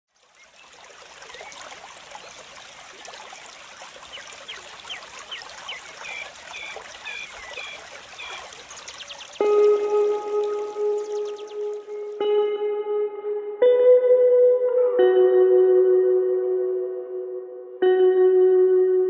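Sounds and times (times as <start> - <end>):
bird chirping: 4.1 - 9.6, 10.8 - 12.0.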